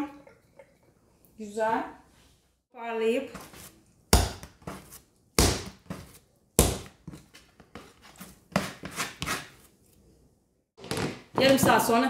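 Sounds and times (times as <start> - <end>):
dough slapped on counter: 4.1 - 4.7, 5.4 - 6.0, 6.6 - 7.0
dough scraper scraping worktop: 4.5 - 9.7.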